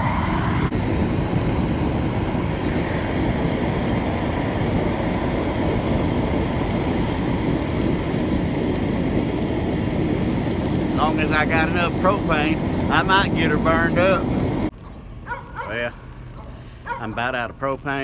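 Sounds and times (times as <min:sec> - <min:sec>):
torch flame rumbling: 0:00.0 - 0:18.0.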